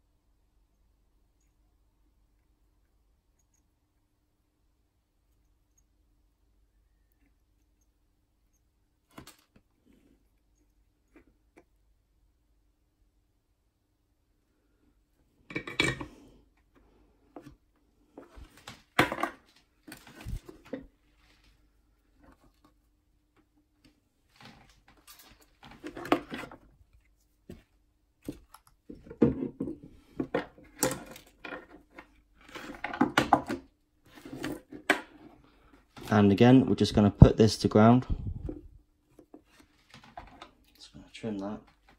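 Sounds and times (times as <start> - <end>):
faint steady hum: 0.0 - 32.4.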